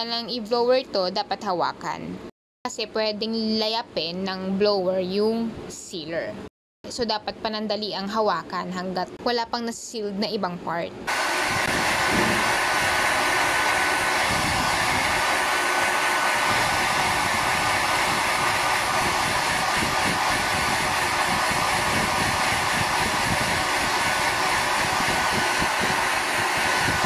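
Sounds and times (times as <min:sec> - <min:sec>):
hair dryer running: 0:11.1 - 0:27.0.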